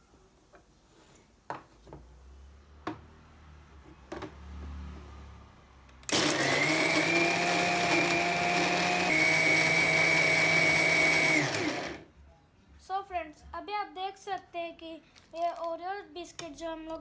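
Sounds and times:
food processor grinding: 6.0 - 12.0.

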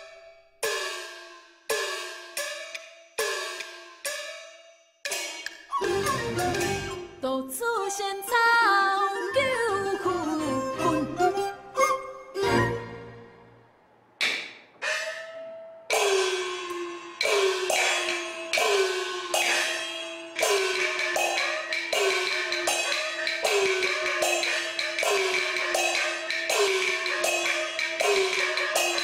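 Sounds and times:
cymbal crashes: 15.9 - 29.0.

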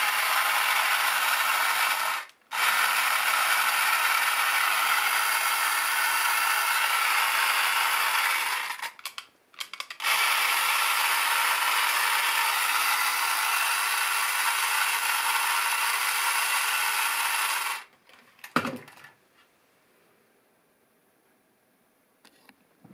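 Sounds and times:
toy motor whirring: 0.0 - 17.9
clicks: 8.9 - 10.0.

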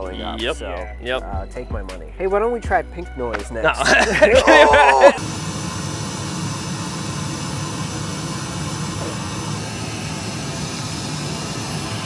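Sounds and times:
pink noise hiss from speaker: 3.8 - 5.3.

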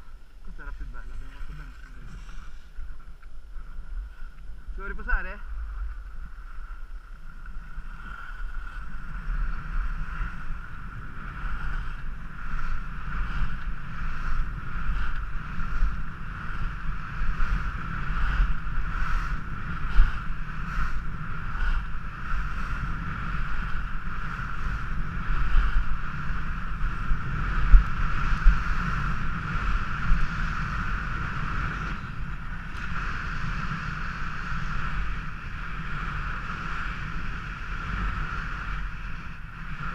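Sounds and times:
skis scraping over snow: 0.0 - 39.9
wind buffeting camera: 0.0 - 39.9.

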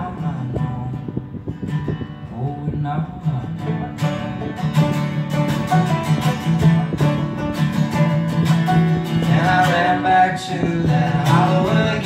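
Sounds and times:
acoustic guitar: 0.0 - 12.0
low bass line: 0.0 - 12.0
banjo picking: 3.6 - 12.0.

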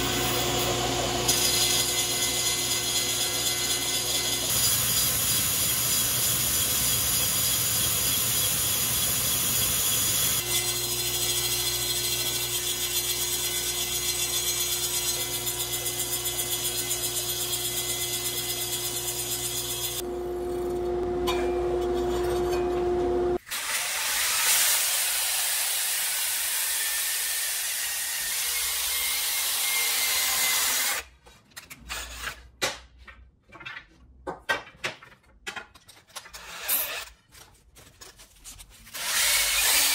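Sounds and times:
table saw shaving wood: 0.0 - 31.1, 38.9 - 39.9
cordless drill running: 39.0 - 39.9.

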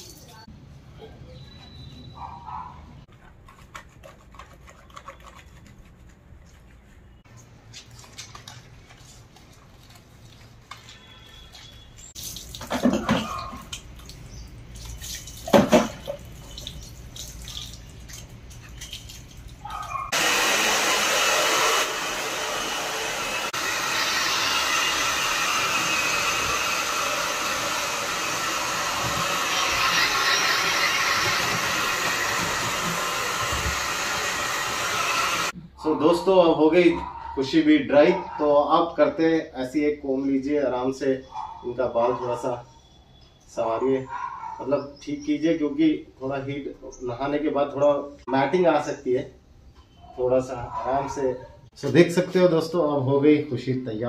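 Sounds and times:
hair dryer blowing: 20.1 - 35.6.

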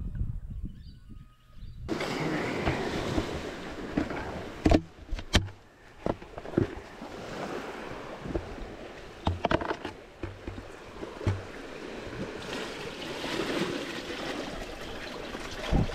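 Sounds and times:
water splashing: 1.9 - 15.9
sharp knocks: 9.2 - 11.6.

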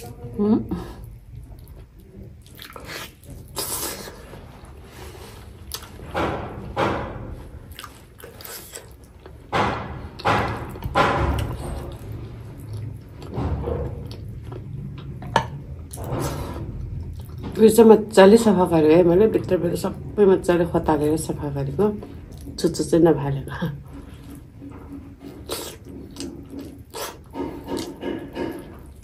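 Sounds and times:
person eating and chewing: 0.0 - 6.6, 7.2 - 17.5, 23.8 - 29.0.

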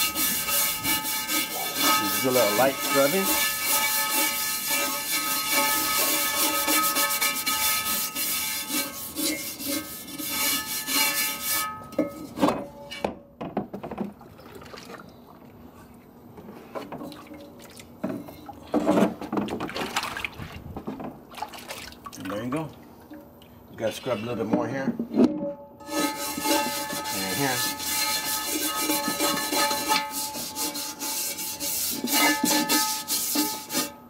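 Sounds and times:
brush scrubbing cast iron skillet: 0.0 - 12.4, 25.8 - 34.0
water sloshing and splashing: 13.8 - 23.6.

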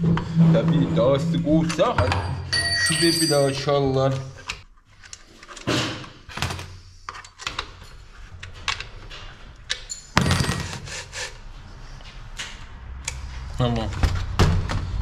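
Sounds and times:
knocks and thuds of objects: 14.0 - 15.0.

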